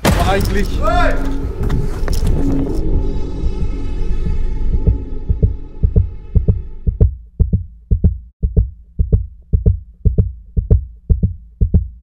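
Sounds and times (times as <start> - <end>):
sustained drone: 1.0 - 7.0
heartbeat thumps: 3.4 - 12.0.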